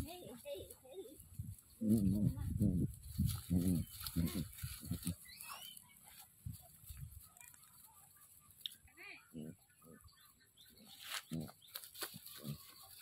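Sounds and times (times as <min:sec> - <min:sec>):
small birds chirping: 0:00.0 - 0:13.0
chicken clucking: 0:09.4 - 0:13.0.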